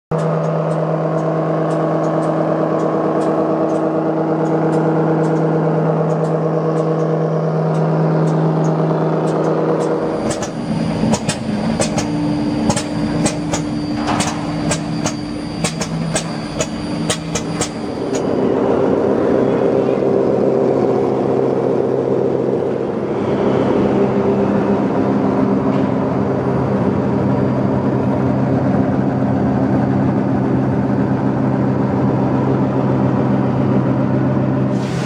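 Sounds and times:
sharp clicks and knocks: 0:00.1 - 0:18.3.

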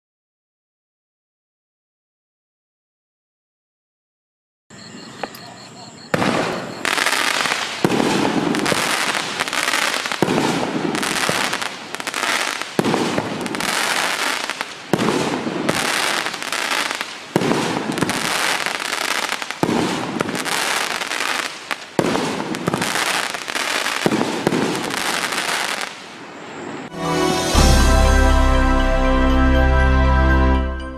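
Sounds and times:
firework bangs: 0:06.1 - 0:26.2
firework crackling: 0:06.1 - 0:26.2.

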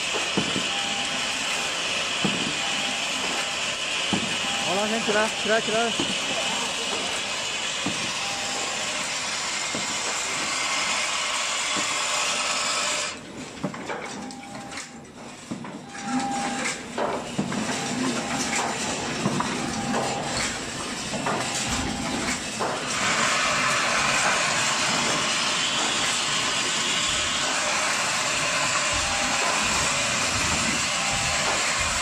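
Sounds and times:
short tones: 0:04.4 - 0:07.4, 0:15.8 - 0:16.8.

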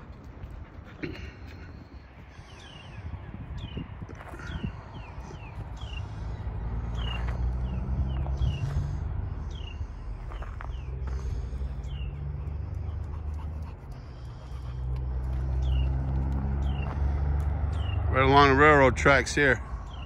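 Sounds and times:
dog panting: 0:00.0 - 0:02.7, 0:08.1 - 0:17.1.

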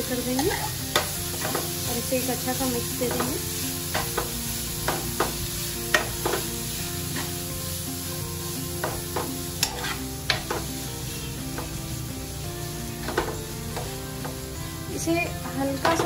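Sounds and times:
vegetables sizzling in hot oil: 0:00.0 - 0:16.0
metal spoon scraping a pan: 0:00.1 - 0:07.5, 0:08.8 - 0:11.7.

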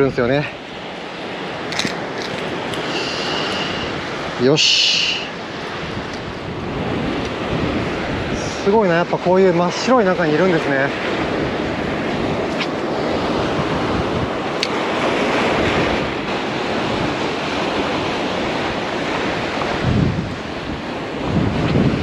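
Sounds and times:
surf breaking on rocks: 0:00.0 - 0:22.0
wind buffeting microphone: 0:00.0 - 0:22.0.

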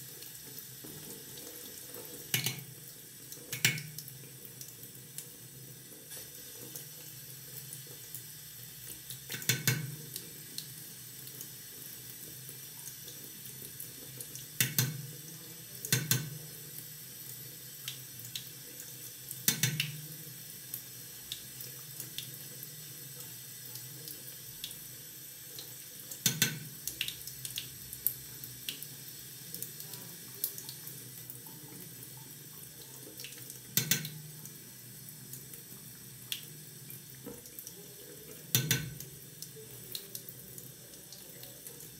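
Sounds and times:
tap running into sink: 0:02.0 - 0:02.7, 0:03.5 - 0:04.1, 0:09.3 - 0:10.2, 0:14.6 - 0:15.1, 0:15.9 - 0:16.5, 0:19.4 - 0:20.1, 0:26.2 - 0:27.2, 0:33.7 - 0:34.3, 0:38.4 - 0:39.1.

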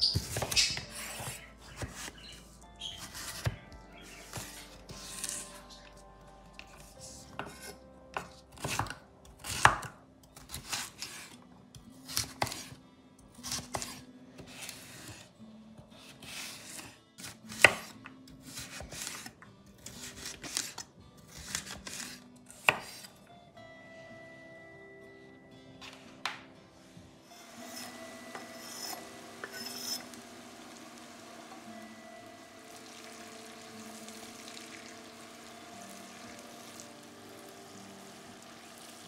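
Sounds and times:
knife chopping on cutting board: 0:00.1 - 0:02.2, 0:07.4 - 0:09.9, 0:16.0 - 0:19.3, 0:20.0 - 0:23.1.

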